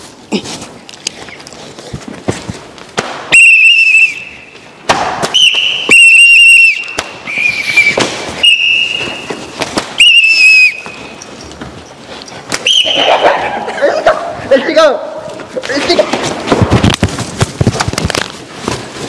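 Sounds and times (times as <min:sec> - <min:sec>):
whistle blasts: 0:03.3 - 0:04.6, 0:05.2 - 0:09.4, 0:10.0 - 0:11.2, 0:12.6 - 0:13.2.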